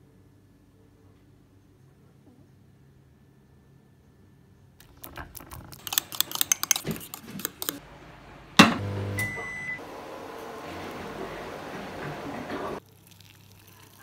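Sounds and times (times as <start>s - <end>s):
clicking and crunching: 4.8s - 7.8s
microwave humming: 7.8s - 12.8s
microwave beep: 8.6s - 9.9s.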